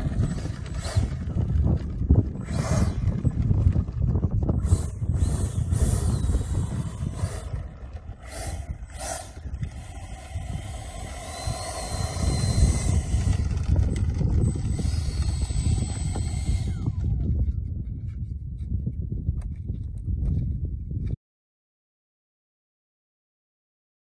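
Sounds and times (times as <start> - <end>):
electric fan whining: 0.0 - 17.9
steady low rumble: 0.0 - 21.2.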